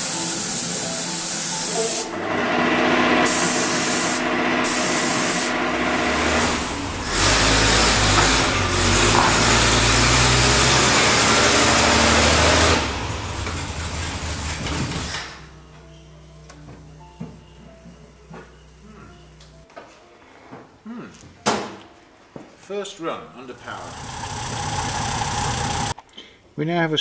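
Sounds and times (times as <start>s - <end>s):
paint spray gun hissing: 0.0s - 2.1s, 3.2s - 5.6s, 23.8s - 26.0s
car engine running: 2.1s - 19.5s, 23.6s - 26.0s.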